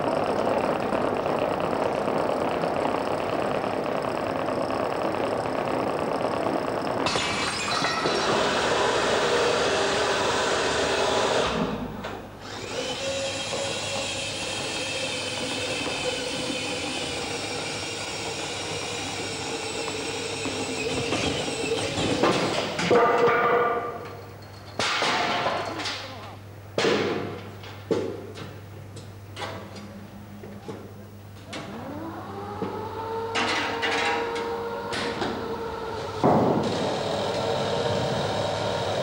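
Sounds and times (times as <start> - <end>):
small electric motors whirring: 0.0 - 11.6, 12.4 - 22.6, 31.6 - 39.0.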